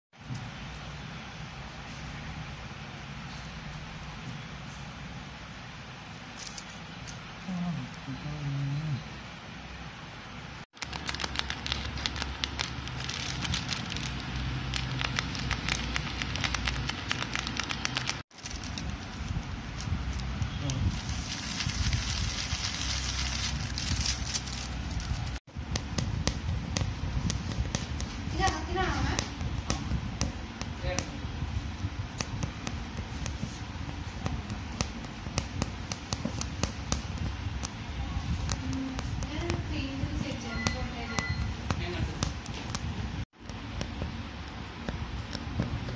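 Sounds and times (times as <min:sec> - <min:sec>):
low steady rumble: 0:07.0 - 0:45.9
tracing paper crackling: 0:10.8 - 0:25.4.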